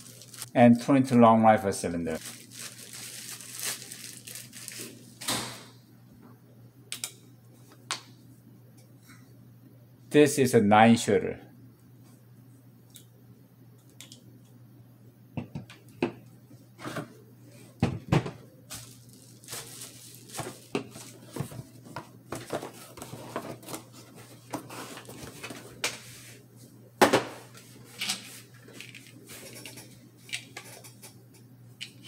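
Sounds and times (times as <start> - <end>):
cardboard and plastic rustling: 0.0 - 0.6, 2.2 - 5.2, 18.7 - 25.8.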